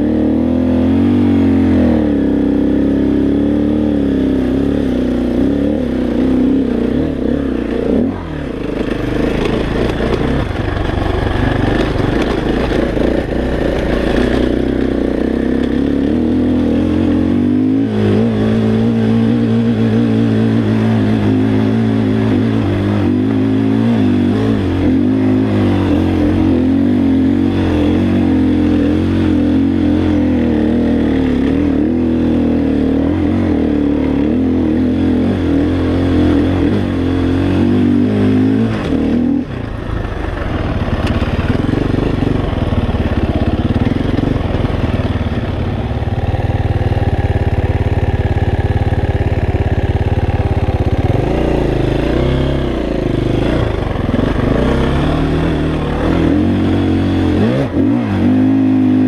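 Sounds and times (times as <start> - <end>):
dirt bike engine under load: 7.2 - 15.8.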